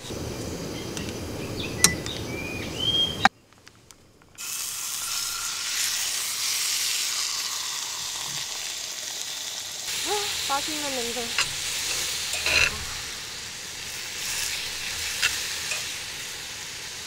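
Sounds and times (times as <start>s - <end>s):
meat sizzling in a skillet: 4.4s - 17.0s.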